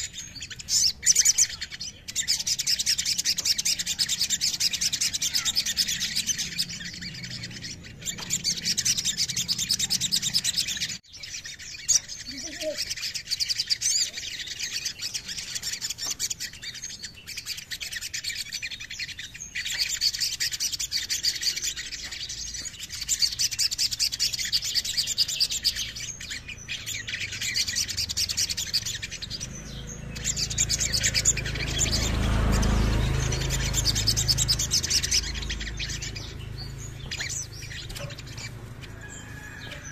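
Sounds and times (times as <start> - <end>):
bird twittering trills: 0.0 - 39.9.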